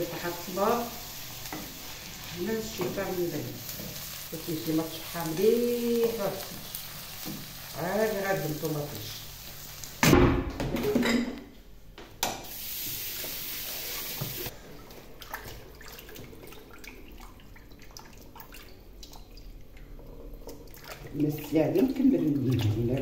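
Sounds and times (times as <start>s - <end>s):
water splashing and dripping: 14.2s - 23.0s.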